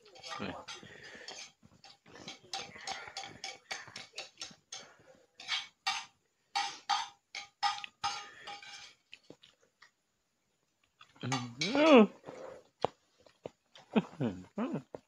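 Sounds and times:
metal spoon scraping plastic bowl: 8.0 - 9.0.

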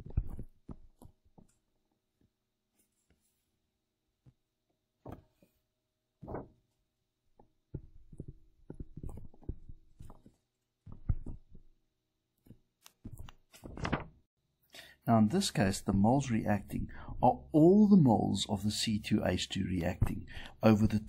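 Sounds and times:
stylus knocking and scraping tablet: 0.0 - 1.6, 7.4 - 11.8, 12.4 - 13.8.

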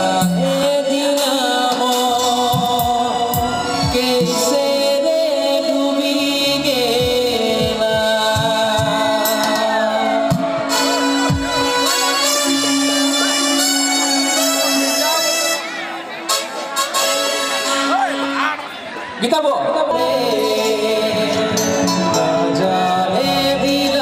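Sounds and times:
drum beats: 0.0 - 4.9, 6.8 - 15.4
bass guitar: 0.0 - 15.1, 19.9 - 24.0
man singing into microphone: 0.0 - 15.4, 19.2 - 24.0.

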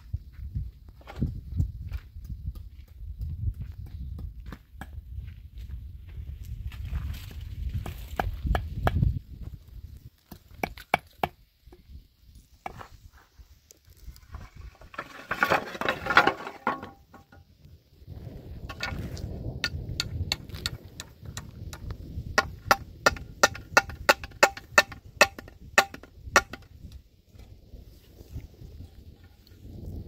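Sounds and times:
wooden boards clattering: 14.6 - 17.4
hammer striking wooden board: 22.4 - 26.7.

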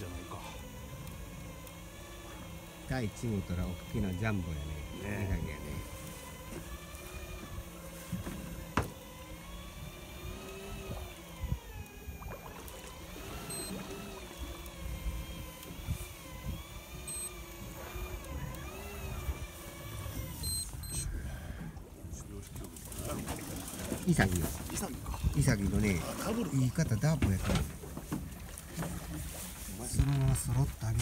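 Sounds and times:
electric fishing reel motor whine: 0.0 - 21.4
short high beeps: 13.4 - 13.9, 17.0 - 17.4, 20.4 - 21.1.

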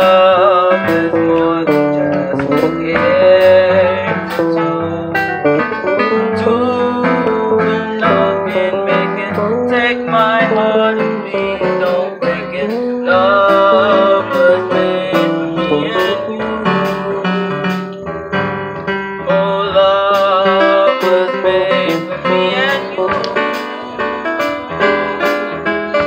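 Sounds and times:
live band instrumental: 0.0 - 26.0
sharp drum and cymbal hits: 20.1 - 26.0.

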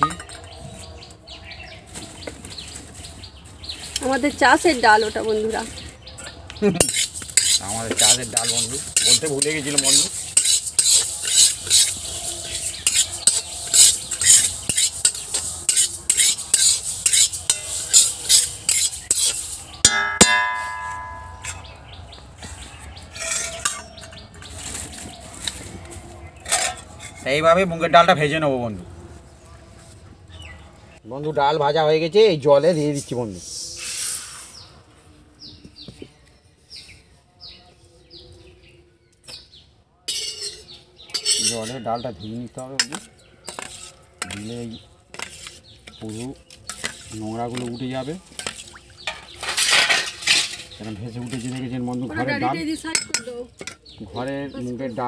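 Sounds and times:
ringing metallic clang: 0.0 - 0.6, 15.7 - 21.8, 40.1 - 42.0
bird chirping: 0.0 - 31.7, 32.7 - 55.0
metal spatula scraping a wok: 6.7 - 21.7, 23.0 - 25.7, 26.3 - 27.4, 40.1 - 52.3.

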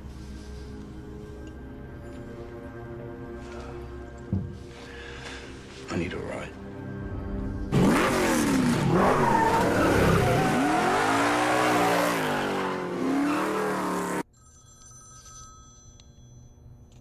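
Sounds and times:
car engine revving: 7.7 - 14.2
telephone ringing faintly: 14.3 - 17.0.

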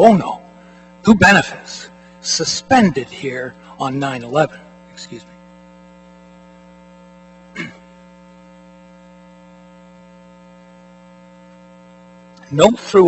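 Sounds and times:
electrical mains hum: 0.0 - 13.0
person coughing: 7.5 - 7.9.

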